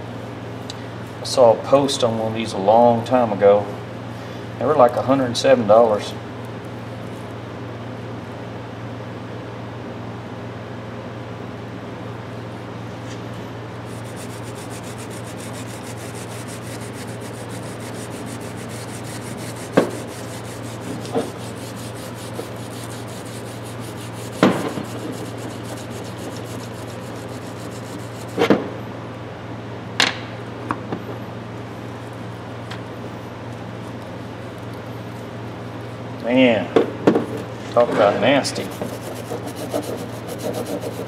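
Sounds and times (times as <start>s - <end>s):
wire brush scrubbing wood: 13.9s - 28.4s, 38.5s - 41.0s.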